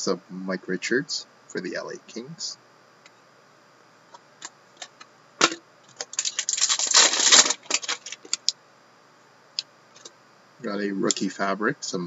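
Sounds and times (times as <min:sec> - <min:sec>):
trading cards rustling and clicking: 0:05.9 - 0:08.5.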